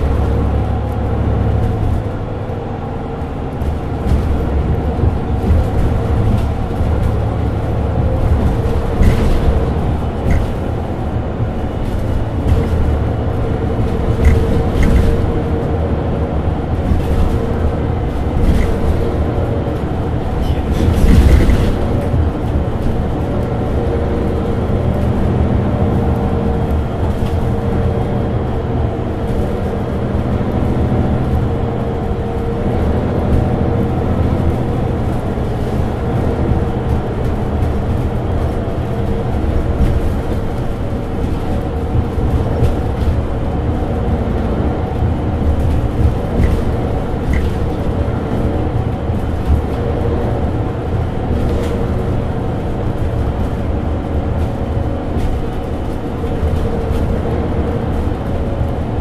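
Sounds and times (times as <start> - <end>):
bus engine idling: 0.0 - 59.0.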